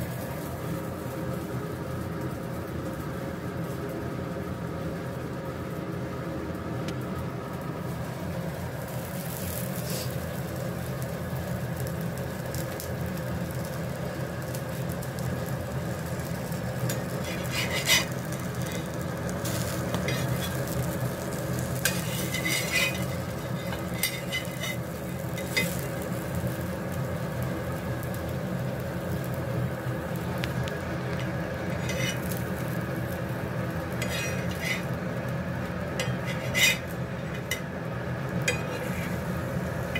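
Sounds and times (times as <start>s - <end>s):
bread sizzling on a griddle: 0.0s - 39.9s
steady hum: 0.0s - 39.9s
metal spatula scraping a griddle: 9.3s - 10.2s, 16.8s - 26.1s, 31.1s - 32.7s, 33.9s - 35.0s, 35.9s - 37.7s, 38.4s - 39.4s.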